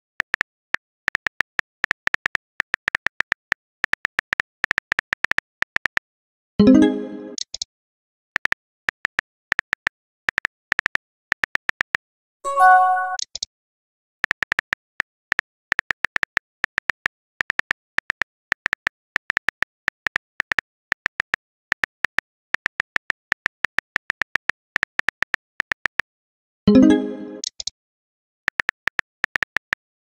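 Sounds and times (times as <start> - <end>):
message sent tone: 12.5 - 13.2.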